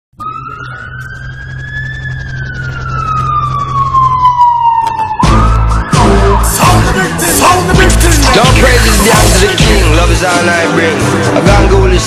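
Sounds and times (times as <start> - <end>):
siren wailing: 0.2 - 9.6
loud beat: 5.2 - 10.8.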